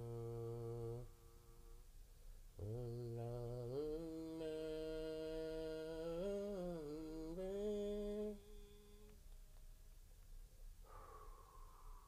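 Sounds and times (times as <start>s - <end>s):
person humming: 0.0s - 1.6s, 2.6s - 9.2s.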